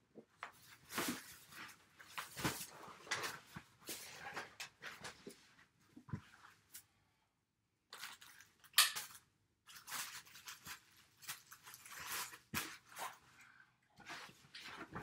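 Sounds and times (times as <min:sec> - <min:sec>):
plastic bags rustling: 0:00.6 - 0:05.2, 0:07.9 - 0:13.2.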